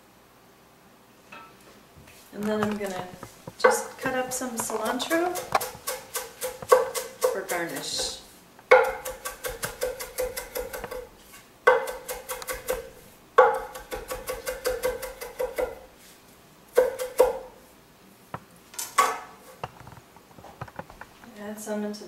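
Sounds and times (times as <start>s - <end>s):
knife chopping on wooden board: 3.6s - 15.9s, 16.8s - 17.6s.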